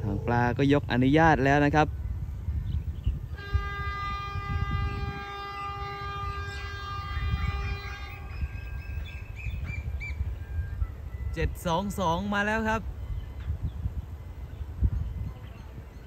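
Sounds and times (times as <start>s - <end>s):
locomotive horn blast: 3.2s - 11.1s.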